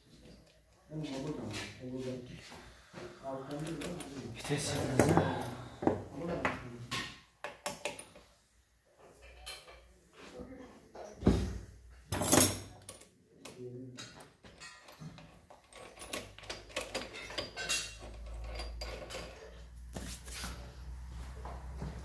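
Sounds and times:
metal engine parts clinking: 14.0s - 19.6s.

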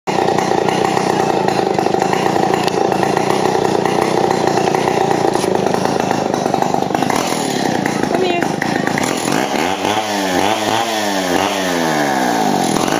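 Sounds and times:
chainsaw running: 0.1s - 12.9s.

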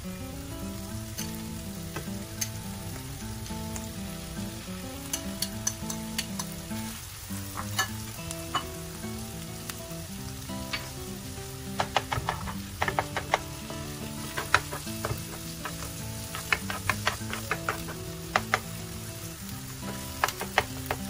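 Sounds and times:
food sizzling in a skillet: 0.0s - 21.0s
metal spoon scraping a pan: 5.1s - 8.7s, 11.8s - 18.8s.

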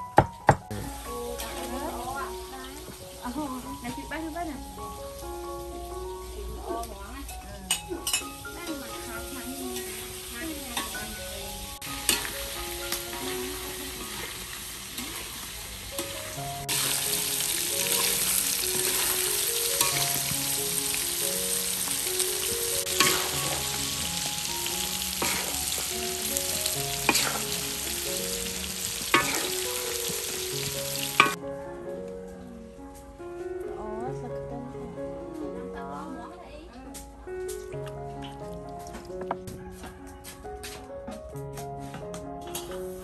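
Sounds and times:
tofu sizzling in hot oil: 8.4s - 31.4s
metal spatula scraping pan: 23.0s - 23.7s.

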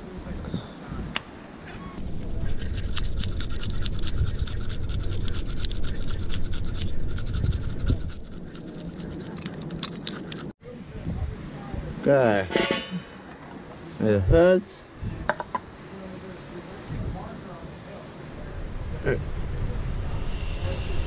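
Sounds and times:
knife scraping fish scales: 2.0s - 10.5s.

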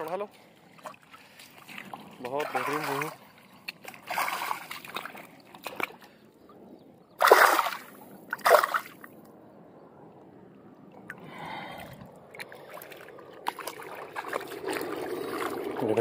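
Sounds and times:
fish splashing in water: 0.8s - 6.0s, 7.2s - 9.0s, 11.4s - 16.0s.

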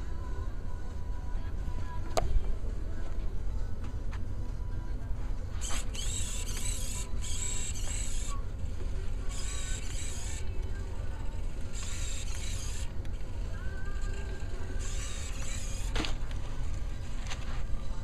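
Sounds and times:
servo motors whirring: 5.6s - 18.0s.

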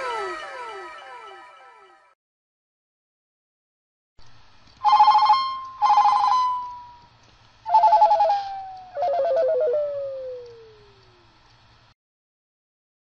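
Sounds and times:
faint low hum: 4.2s - 11.9s
electronic warbling phone ring: 4.8s - 6.9s.

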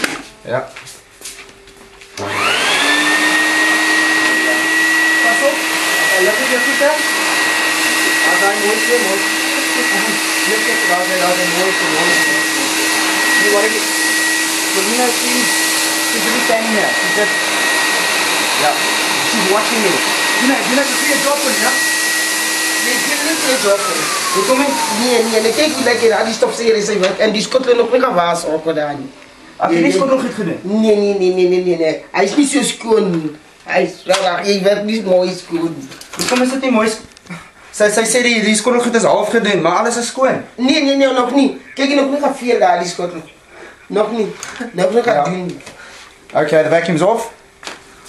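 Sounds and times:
vacuum cleaner running: 2.0s - 31.8s.

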